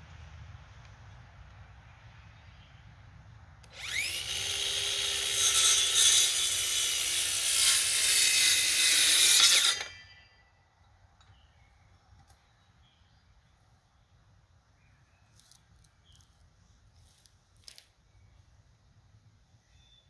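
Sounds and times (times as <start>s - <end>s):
power tool running: 3.6s - 10.1s.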